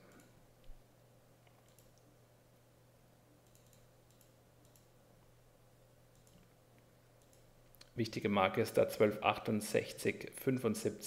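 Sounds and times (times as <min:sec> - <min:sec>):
low steady hum: 0:00.0 - 0:11.0
computer clicks: 0:00.1 - 0:00.8, 0:01.4 - 0:02.1, 0:03.4 - 0:05.0, 0:06.1 - 0:06.6, 0:07.2 - 0:08.0.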